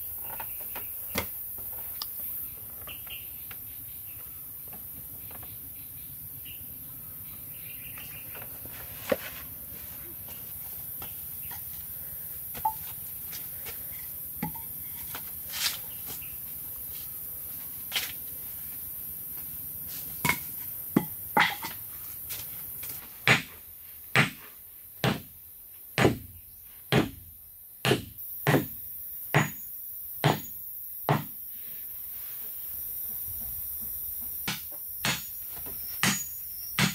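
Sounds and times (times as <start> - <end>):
hammer blows on wooden stake: 30.2 - 31.4, 34.4 - 36.9.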